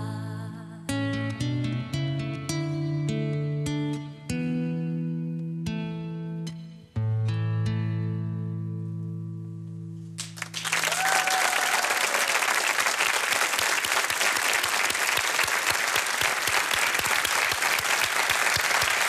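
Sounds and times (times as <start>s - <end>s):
audience applause: 10.2s - 19.0s.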